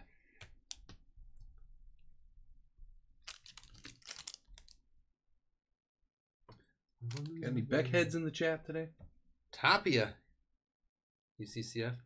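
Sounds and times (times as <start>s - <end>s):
cards rustling and tapping: 3.2s - 4.7s.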